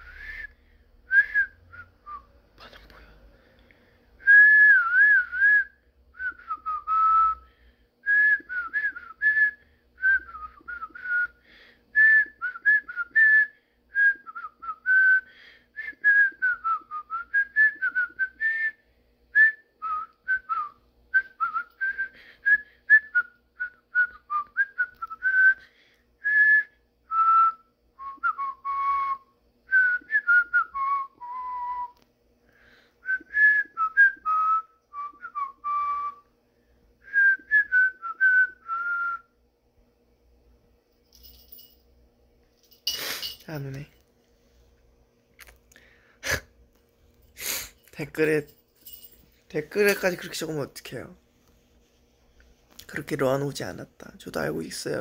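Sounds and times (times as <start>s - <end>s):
man whistling a tune: 0.0s - 2.3s, 4.2s - 25.6s, 26.2s - 32.0s, 33.0s - 36.3s, 37.0s - 39.4s.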